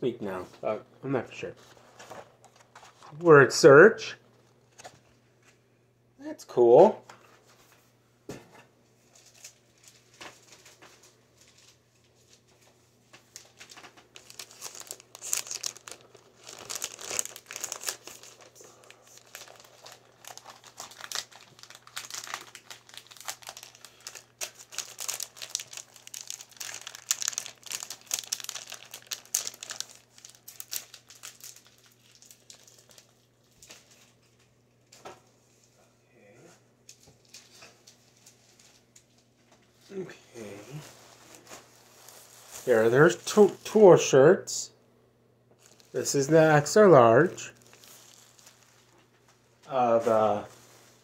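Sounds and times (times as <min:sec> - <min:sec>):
plastic packaging crinkling: 0:09.0 - 0:12.6, 0:13.2 - 0:34.4, 0:40.8 - 0:43.8, 0:45.6 - 0:49.4.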